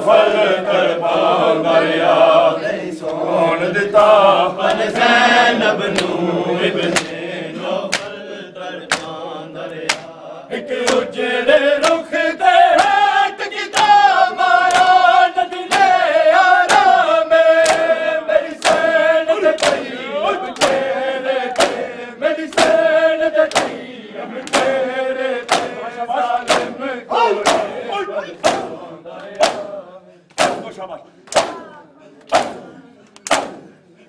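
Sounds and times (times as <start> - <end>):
men chanting in unison: 0.0 - 34.0
hands slapping chests: 5.9 - 6.3, 6.9 - 7.2, 7.9 - 8.2, 8.8 - 10.2, 10.8 - 11.2, 11.8 - 12.1, 12.8 - 13.0, 13.7 - 15.0, 15.7 - 16.0, 16.6 - 17.0, 17.6 - 18.0, 18.6 - 18.9, 19.5 - 19.9, 20.5 - 20.9, 21.6 - 21.9, 22.5 - 24.8, 25.4 - 25.8, 26.5 - 27.8, 28.4 - 29.7, 30.3 - 33.8.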